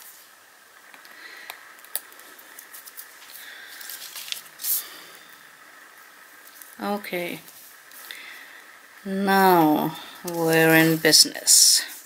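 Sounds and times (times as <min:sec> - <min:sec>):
paper doily rustling: 0:02.5 - 0:04.9.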